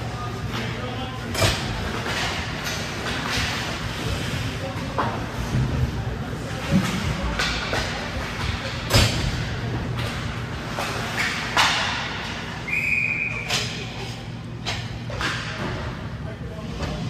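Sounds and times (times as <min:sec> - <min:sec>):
hockey sticks and puck cracking: 0:00.5 - 0:14.0, 0:14.6 - 0:16.0.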